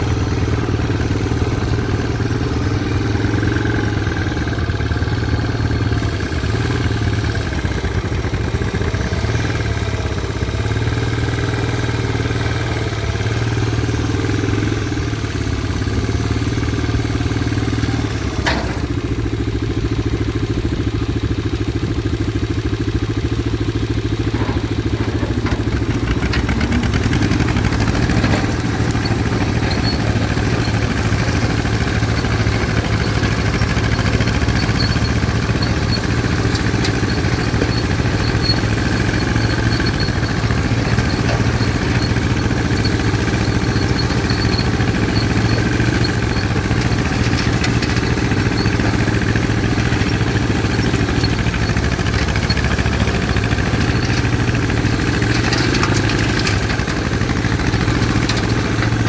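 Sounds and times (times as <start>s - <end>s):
tractor engine running under load: 0.0s - 59.0s
rotary cutter cutting grass: 23.7s - 59.0s.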